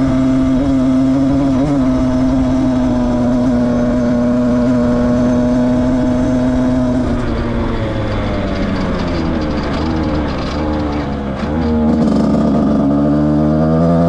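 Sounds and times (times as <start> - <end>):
two-stroke motorcycle engine: 0.0 - 14.0.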